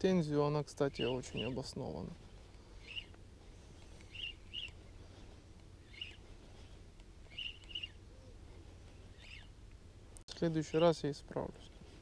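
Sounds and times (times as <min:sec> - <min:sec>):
steady low rumble: 0:00.0 - 0:12.0
short high bird chirps: 0:02.8 - 0:03.1, 0:04.1 - 0:04.8, 0:05.8 - 0:06.2, 0:07.3 - 0:08.0, 0:09.1 - 0:09.5.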